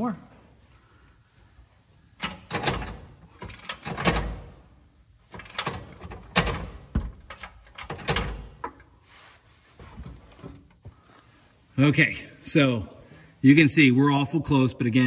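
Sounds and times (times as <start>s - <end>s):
metal clunking: 2.1s - 9.1s.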